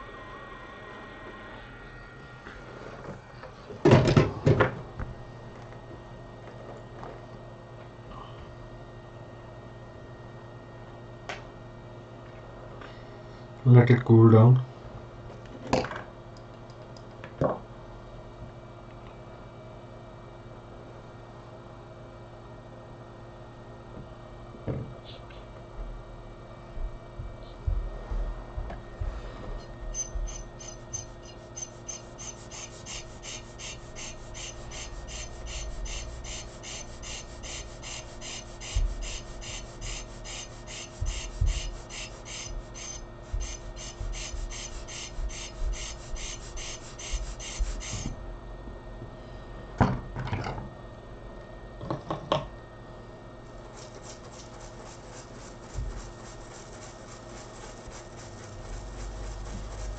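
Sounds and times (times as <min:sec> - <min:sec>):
steady hum: 0:00.0 - 0:15.2, 0:22.3 - 0:49.8, 0:52.6 - 0:59.9
stiff brush scrubbing: 0:30.2 - 0:48.1, 0:53.6 - 0:59.9.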